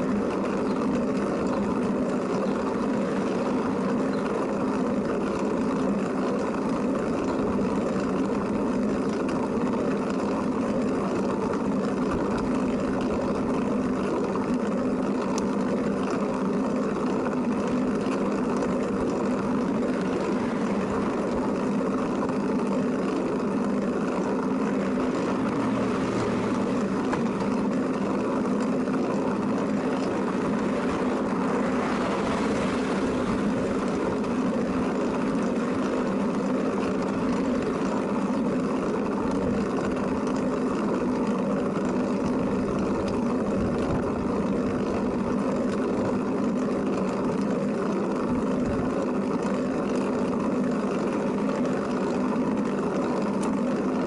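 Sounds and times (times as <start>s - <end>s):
trike running drone: 0.0s - 54.0s.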